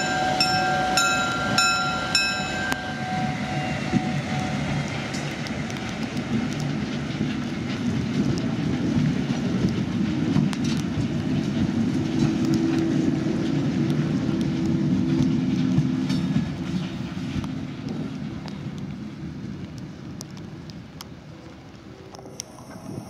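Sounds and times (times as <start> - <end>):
steady tone: 0.0 - 5.3
locomotives rumbling past: 0.0 - 23.0.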